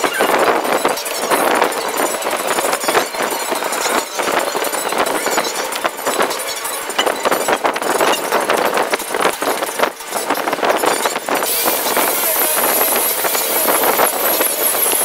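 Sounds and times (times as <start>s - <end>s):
sanding on boat hull: 11.4s - 15.0s.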